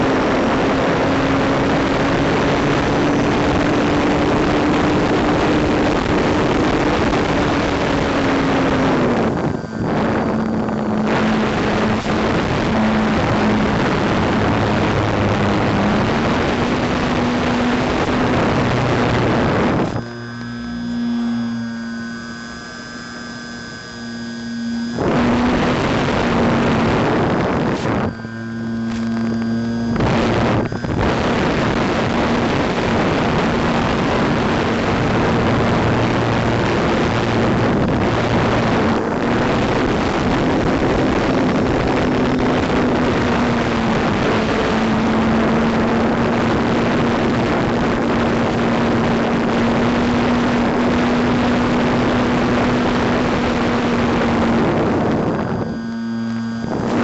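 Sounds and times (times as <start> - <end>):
model plane motor drone: 0.0 - 57.0
wind rush over microphone: 0.0 - 57.0.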